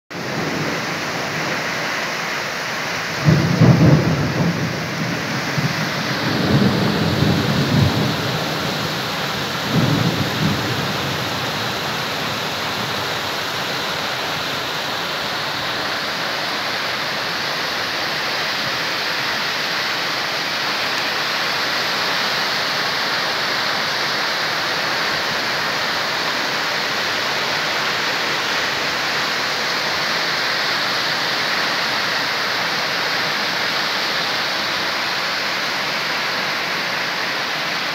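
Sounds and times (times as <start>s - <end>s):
torrential rain: 0.1s - 37.9s
thunder rolling: 3.1s - 13.4s.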